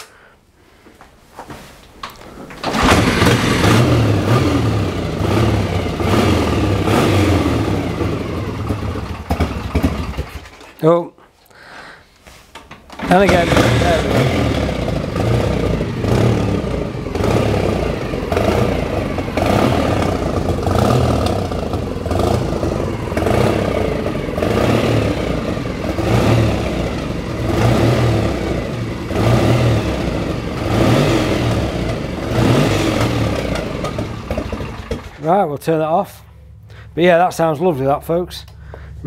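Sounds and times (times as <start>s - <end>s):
motorcycle engine revving: 2.6s - 10.6s, 13.0s - 35.2s.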